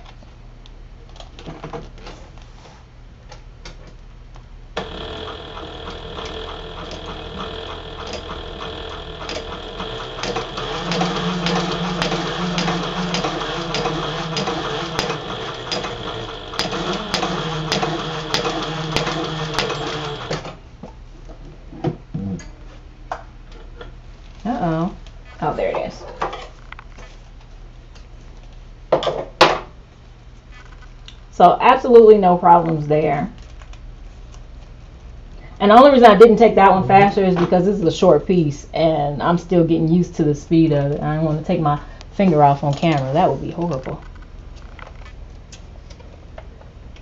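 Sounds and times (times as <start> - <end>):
sewing machine needle ticking: 4.8 - 20.4
sewing machine motor whine: 4.8 - 20.6.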